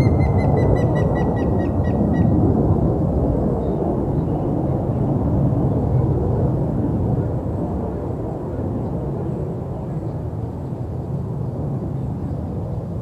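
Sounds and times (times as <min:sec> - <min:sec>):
woodpecker whistled notes: 0:00.0 - 0:02.3.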